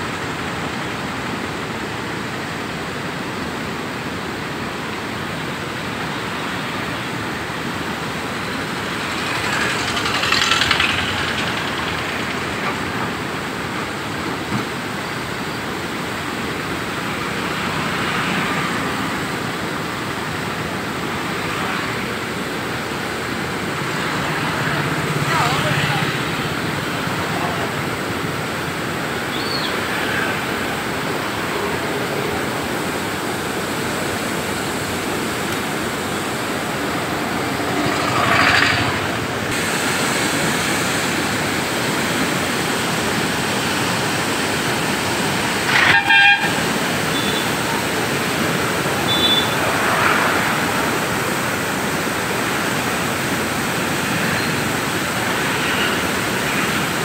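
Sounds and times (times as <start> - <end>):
floodwater rushing: 0.0 - 57.0
vehicle horn honking: 45.7 - 47.6, 49.1 - 49.6.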